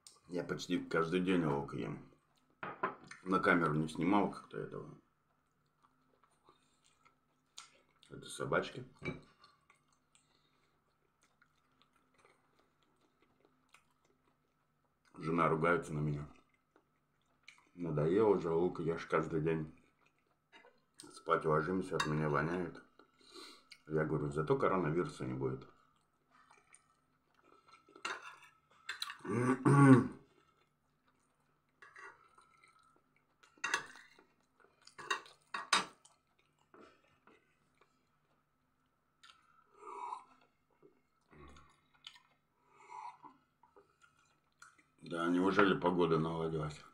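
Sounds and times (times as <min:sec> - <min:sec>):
person chewing food: 0:05.3 - 0:08.1, 0:09.2 - 0:15.2, 0:16.3 - 0:17.8, 0:19.7 - 0:21.1, 0:25.7 - 0:29.3, 0:30.1 - 0:45.0
metal spoon scraping a plate: 0:28.0 - 0:29.2, 0:31.8 - 0:32.2
throaty throat sound: 0:29.2 - 0:30.2.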